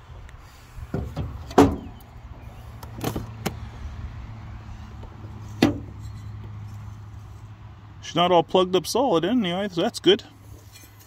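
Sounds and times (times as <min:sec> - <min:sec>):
metal engine parts clunking: 0:00.8 - 0:03.6, 0:04.9 - 0:07.5, 0:10.5 - 0:11.0.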